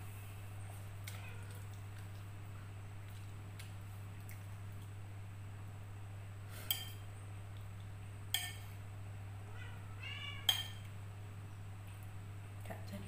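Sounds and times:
fork clinking on ceramic plate: 6.7 - 7.0, 8.3 - 8.6, 10.5 - 10.9.

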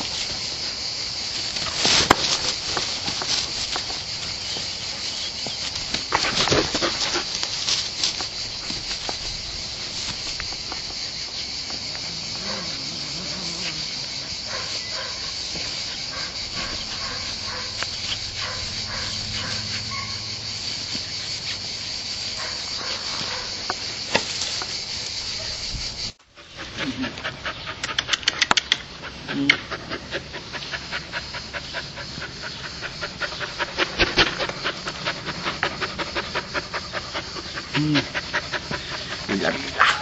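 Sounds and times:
insect chorus chirring: 0.0 - 40.0
puppy panting: 2.8 - 9.2, 13.6 - 21.8, 26.4 - 40.0.

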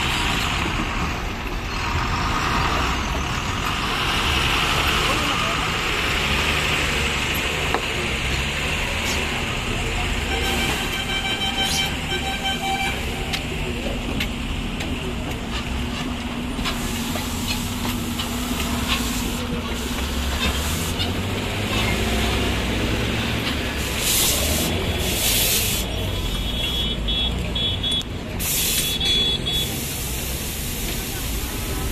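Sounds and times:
diesel truck engines: 0.0 - 31.9
vehicle horn: 10.3 - 13.2, 26.3 - 29.8
air hissing bursts: 23.8 - 25.9, 28.4 - 31.7.

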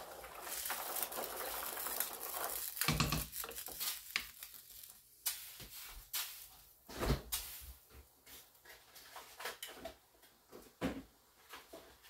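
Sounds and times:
kitchen things knocking: 2.8 - 3.7.

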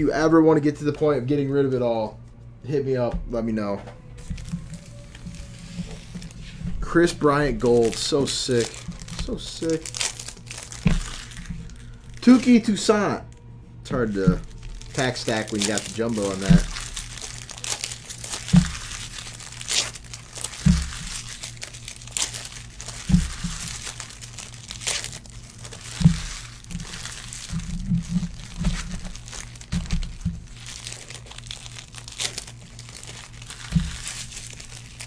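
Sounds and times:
foil wrappers crinkling and tearing: 4.1 - 35.0
dull thumps: 15.8 - 19.8, 20.4 - 21.6, 33.4 - 34.6.

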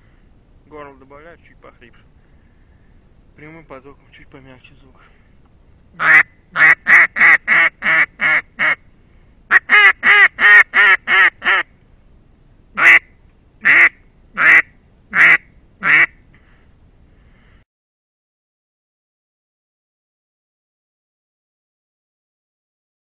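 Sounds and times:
raspy duck call quacks: 6.0 - 8.8, 9.5 - 11.7, 12.8 - 16.2.

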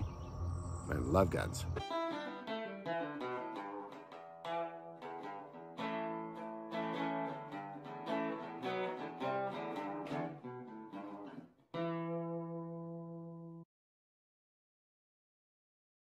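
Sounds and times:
acoustic guitar: 1.8 - 12.0.

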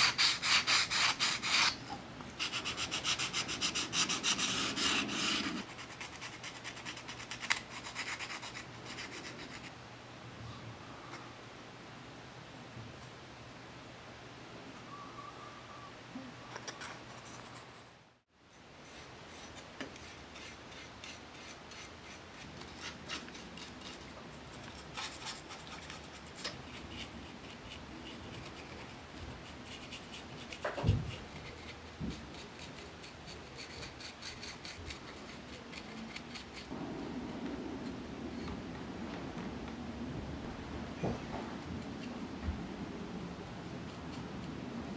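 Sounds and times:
paintbrush scratching on wood: 2.4 - 9.7.

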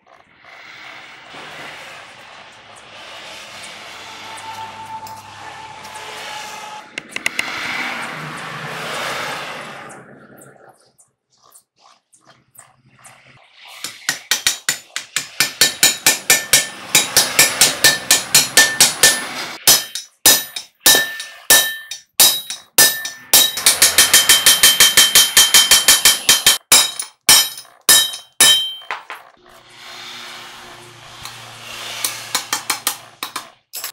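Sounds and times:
hammer striking steel: 13.8 - 29.2, 32.0 - 33.9.

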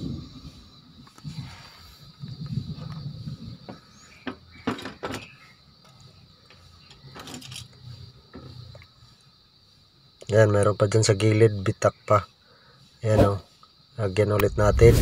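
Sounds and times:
low rumble: 14.4 - 15.0.

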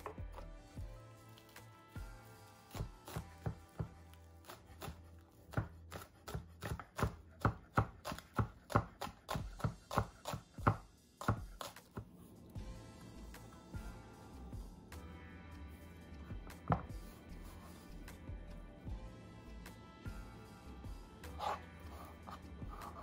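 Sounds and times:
knife chopping on wooden board: 2.7 - 12.2, 16.4 - 17.2, 21.2 - 23.0.

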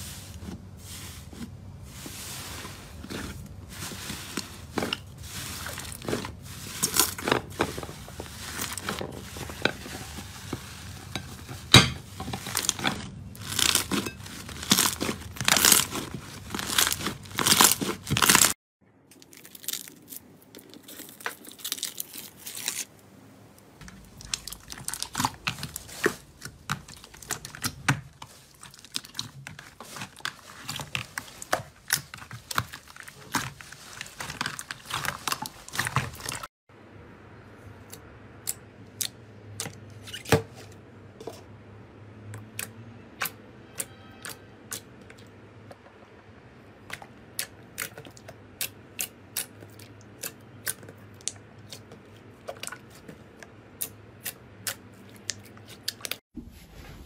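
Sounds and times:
crunchy slime crackles: 0.0 - 11.7, 12.3 - 23.0, 23.8 - 36.5.

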